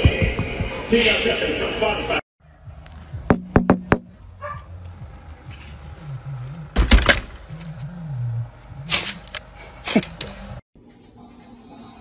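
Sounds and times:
dog barking: 4.4s - 4.8s.

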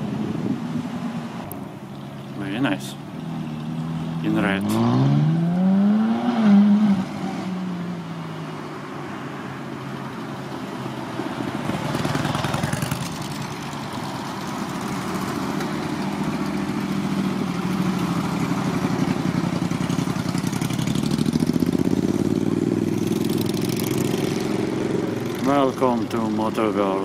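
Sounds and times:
motorcycle engines rumbling: 0.0s - 27.0s
motorcycle engine revving: 3.3s - 8.0s, 11.6s - 27.0s.

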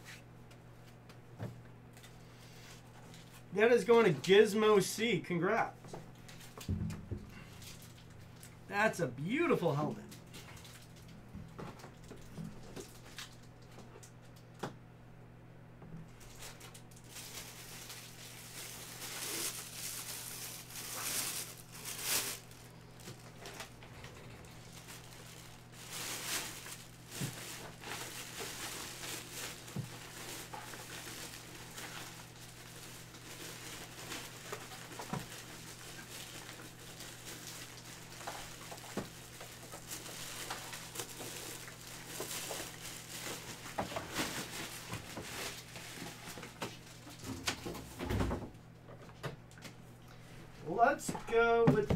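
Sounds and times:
low electrical hum: 0.0s - 51.9s
handling noises rustling and knocks: 5.8s - 8.6s, 15.9s - 49.8s.

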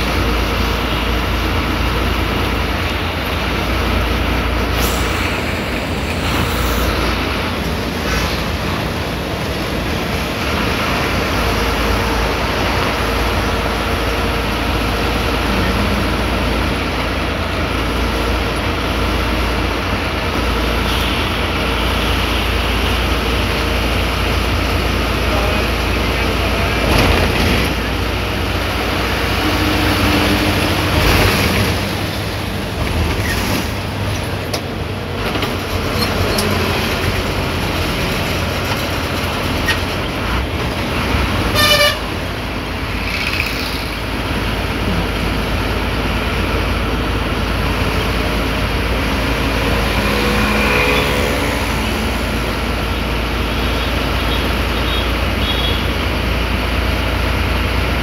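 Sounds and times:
bus engine drone: 0.0s - 58.0s
road noise: 0.0s - 58.0s
vehicle horn honking: 41.5s - 42.2s, 54.2s - 55.9s.

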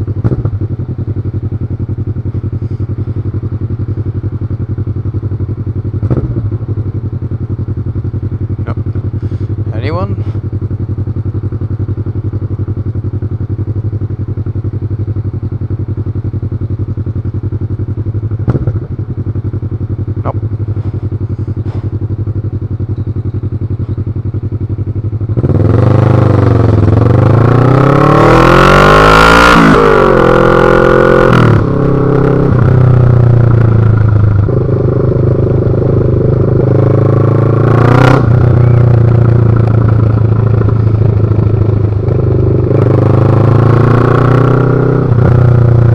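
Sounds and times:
motorcycle engine idling and revving: 0.0s - 45.9s
exhaust pop: 0.2s - 0.6s, 18.4s - 19.0s.

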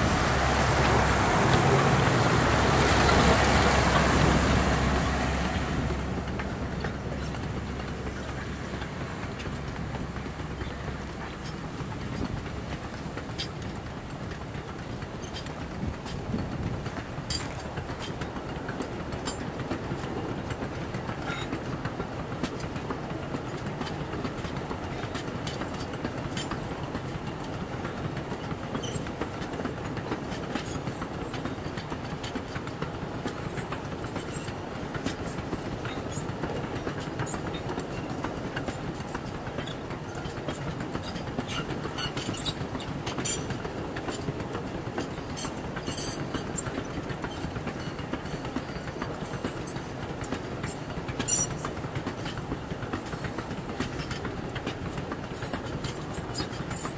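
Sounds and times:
steel wheels rumbling on rails: 0.0s - 56.9s
wheel clicks: 6.3s - 56.9s
high-pitched wheel squeals: 33.3s - 34.6s, 35.2s - 36.3s, 47.3s - 51.7s.

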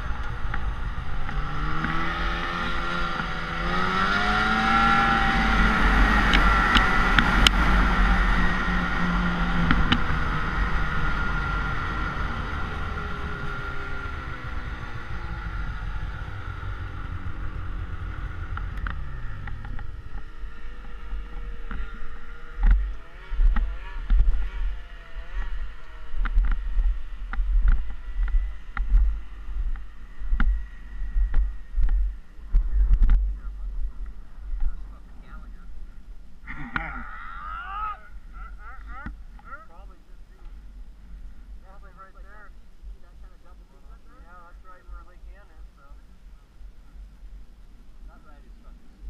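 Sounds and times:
low thumps and rumbles: 0.0s - 37.1s
snowmobile engine running: 0.0s - 46.0s.

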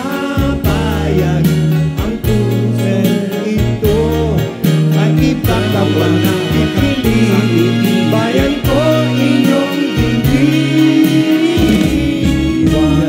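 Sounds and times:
live pop band with guitar: 0.0s - 13.0s
person singing: 0.0s - 13.0s.

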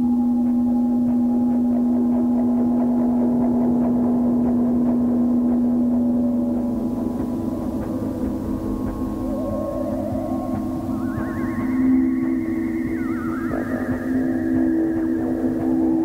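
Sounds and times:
held ambient tones: 0.0s - 16.0s
low drone note: 6.5s - 16.0s.

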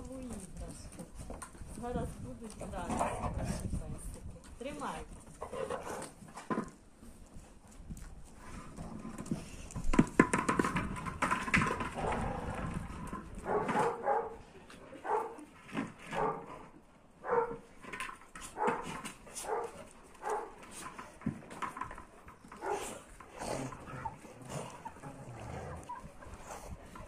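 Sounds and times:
dogs scuffling: 0.0s - 27.0s
dogs barking: 13.4s - 14.4s, 15.0s - 15.4s, 16.1s - 16.5s, 17.2s - 17.6s, 18.5s - 20.6s, 22.6s - 22.9s.

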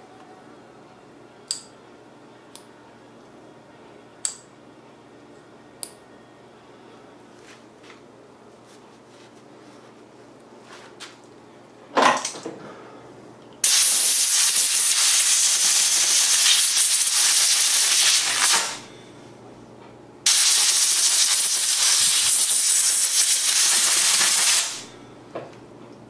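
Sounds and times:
spray nozzle hissing: 13.6s - 18.8s, 20.3s - 24.8s.

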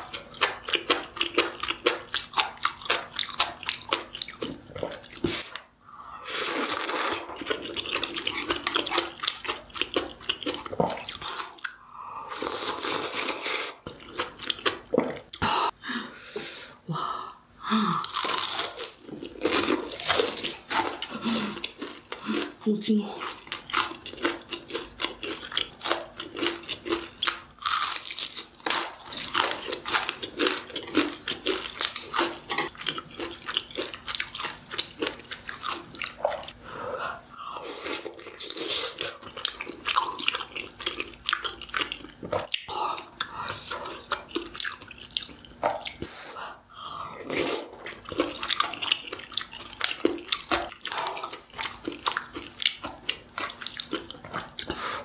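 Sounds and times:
crunchy chewing: 23.2s - 36.6s, 37.7s - 46.1s, 47.3s - 54.8s.

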